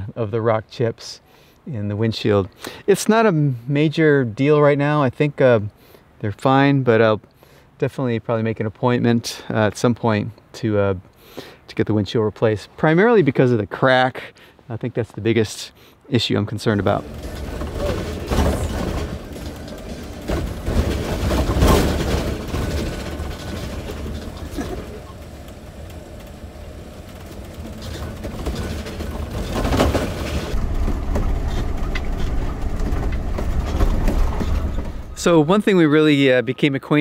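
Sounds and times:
road noise rumble inside vehicle: 0:16.6 - 0:35.4
knocks and rattles over bumps: 0:16.7 - 0:35.7.

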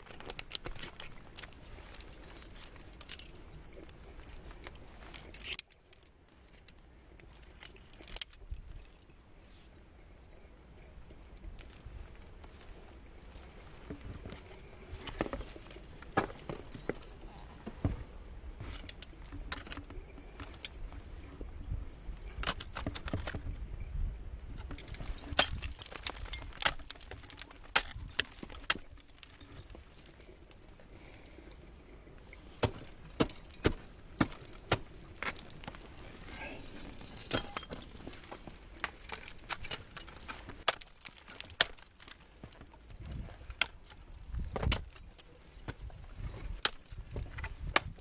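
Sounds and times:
climbing gear clinking: 0:00.0 - 0:09.9, 0:11.0 - 0:23.9, 0:24.5 - 0:48.0
ice axes striking ice: 0:15.0 - 0:17.1, 0:25.1 - 0:29.7, 0:32.6 - 0:42.5, 0:43.5 - 0:45.9, 0:46.6 - 0:48.0.

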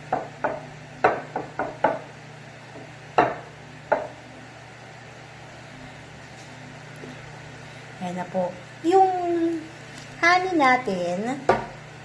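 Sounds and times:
apple slices knocking on glass dish: 0:00.1 - 0:02.1, 0:02.8 - 0:04.2.

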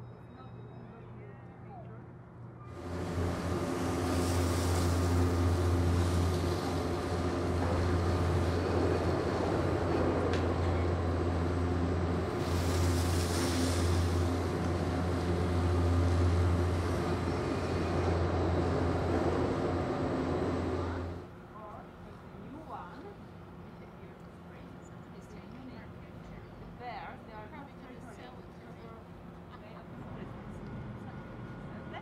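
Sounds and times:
low machine hum with tones: 0:00.0 - 0:32.0
high hiss: 0:12.3 - 0:14.6.

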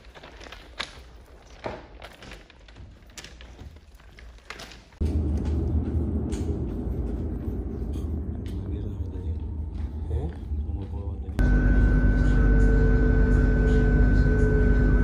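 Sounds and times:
footsteps on railway tracks: 0:05.0 - 0:11.4
loud low rumble: 0:05.0 - 0:15.0.

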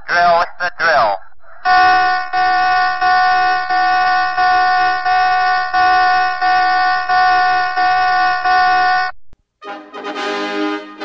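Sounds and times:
pulsing horn-like alarm: 0:01.6 - 0:09.1
brass music: 0:01.7 - 0:11.0.

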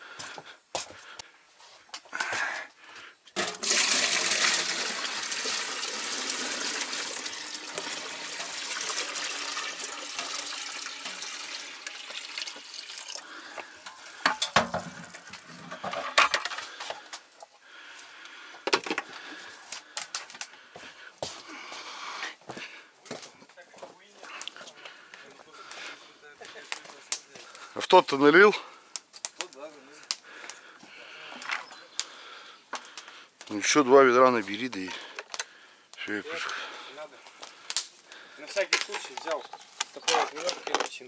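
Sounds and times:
water pouring and splashing: 0:03.4 - 0:16.6.

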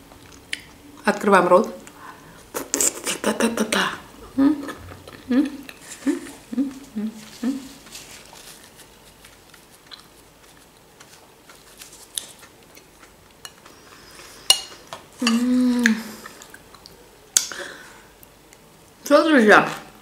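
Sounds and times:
person humming mm: 0:04.2 - 0:07.9, 0:15.2 - 0:16.4
close chewing of salad: 0:04.6 - 0:17.6.

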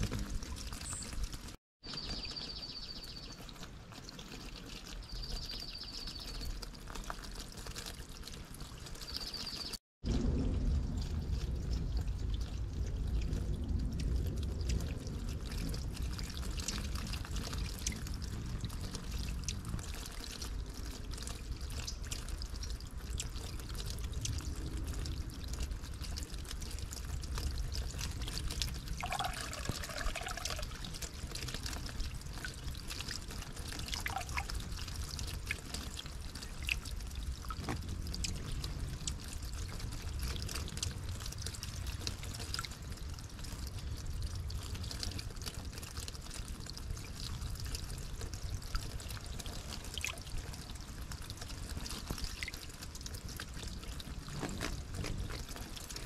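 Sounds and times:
stream water trickling: 0:00.0 - 0:56.0
bird chirps: 0:00.7 - 0:01.2, 0:01.9 - 0:03.4, 0:05.0 - 0:06.5.

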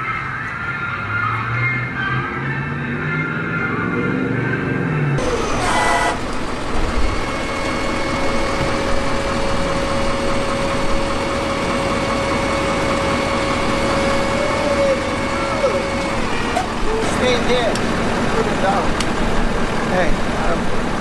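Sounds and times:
music: 0:00.0 - 0:05.2
large vehicle engine running: 0:02.5 - 0:21.0
brief tone: 0:05.6 - 0:06.2.

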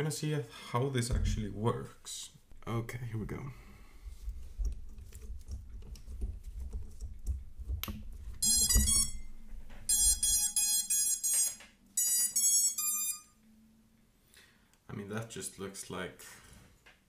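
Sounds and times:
motor startup beeps: 0:08.4 - 0:09.2.

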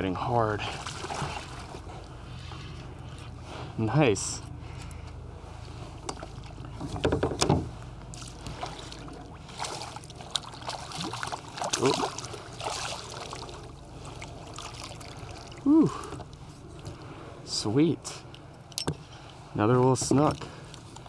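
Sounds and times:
fish thrashing and splashing: 0:00.7 - 0:01.9, 0:08.1 - 0:16.4.

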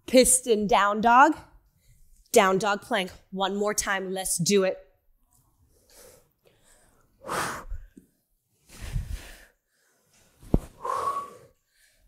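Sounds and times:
woman breathing heavily: 0:05.7 - 0:12.0.

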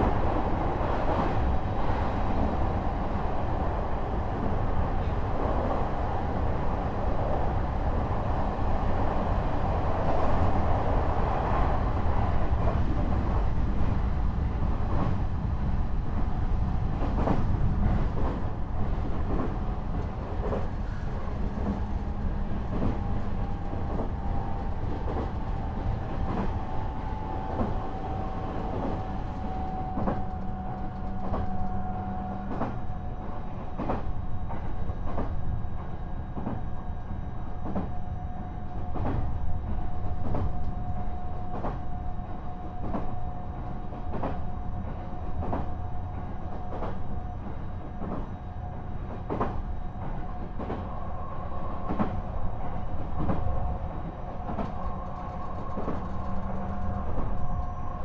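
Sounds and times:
rail-joint clicks: 0:16.9 - 0:35.4, 0:38.7 - 0:51.0, 0:51.6 - 0:58.0.

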